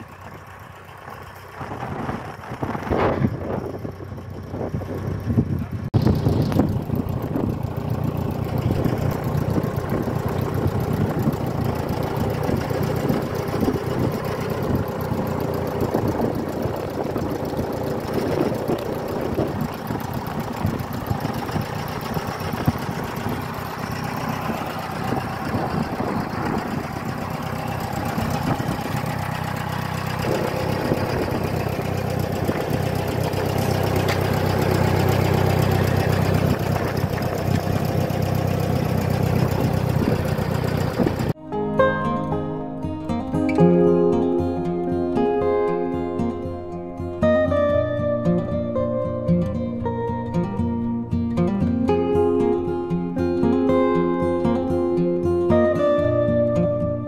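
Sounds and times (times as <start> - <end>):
tractor engine idling: 0.0 - 41.4.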